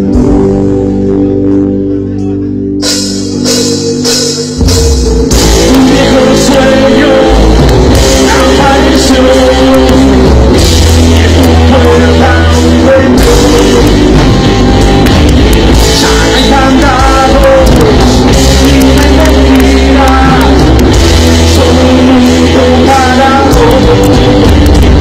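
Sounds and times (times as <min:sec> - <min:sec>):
rock band playing live: 0:00.0 - 0:25.0
person singing: 0:05.3 - 0:25.0.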